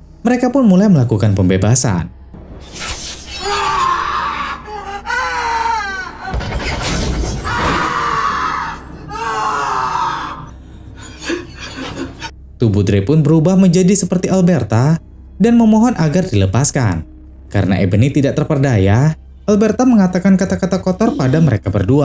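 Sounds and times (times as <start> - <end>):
low film music: 0.0 - 22.0
boy screaming: 3.4 - 6.3, 7.4 - 10.5.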